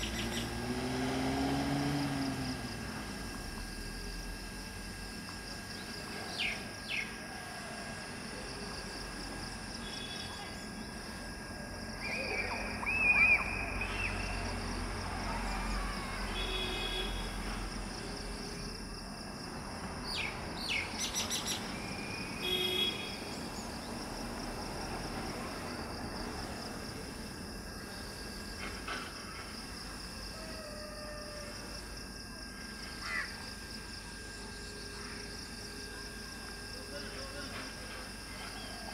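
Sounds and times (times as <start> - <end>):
birds chirping: 0.0 - 0.6
outdoor background noise: 0.0 - 38.9
loud wavering bird call: 12.0 - 14.4.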